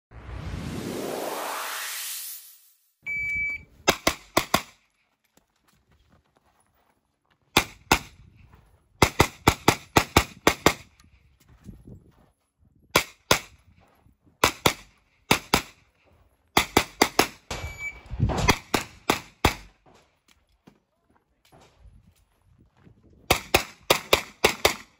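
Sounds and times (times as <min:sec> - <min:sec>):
whoosh transition effect: 0:00.1 - 0:03.0
shot timer beep: 0:03.0 - 0:03.7, 0:17.5 - 0:18.2
carbine gunshots: 0:03.9 - 0:04.8, 0:09.0 - 0:10.9, 0:16.6 - 0:19.8, 0:23.3 - 0:24.9.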